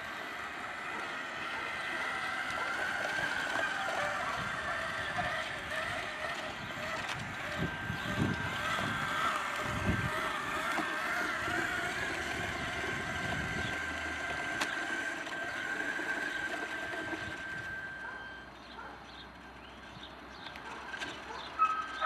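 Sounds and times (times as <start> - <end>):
model truck motor whining: 0.0 - 22.0.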